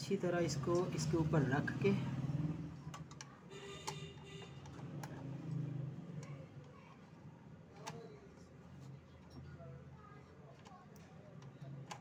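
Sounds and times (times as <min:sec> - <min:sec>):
small parts clicking and tapping: 0:02.9 - 0:06.9, 0:10.5 - 0:12.0.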